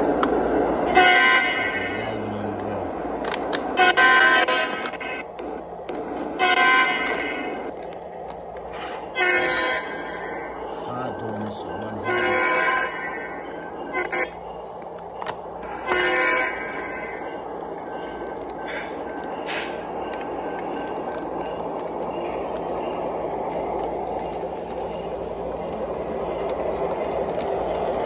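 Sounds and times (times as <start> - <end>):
low electrical hum: 0.0 - 28.0
model train running on track: 0.0 - 28.0
model train horn: 0.9 - 2.3, 3.7 - 5.0, 6.3 - 7.3, 9.0 - 10.0, 12.0 - 13.1, 15.8 - 16.9.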